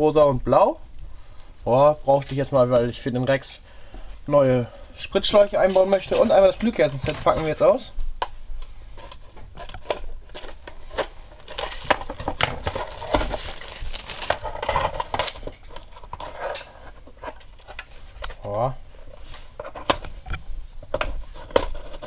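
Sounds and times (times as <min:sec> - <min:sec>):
plastic clicks and crackles: 0:09.0 - 0:16.6
scissors cutting plastic packaging: 0:09.6 - 0:16.0.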